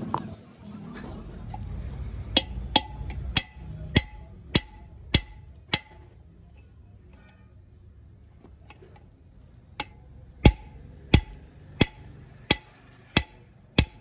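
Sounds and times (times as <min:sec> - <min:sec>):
hammer striking metal punch: 0:02.3 - 0:06.2, 0:09.7 - 0:14.0.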